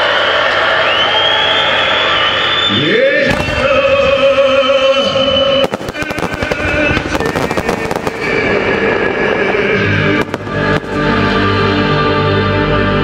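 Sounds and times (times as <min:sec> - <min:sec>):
fireworks bursting and crackling: 0:03.3 - 0:11.6
music soundtrack: 0:05.7 - 0:13.0.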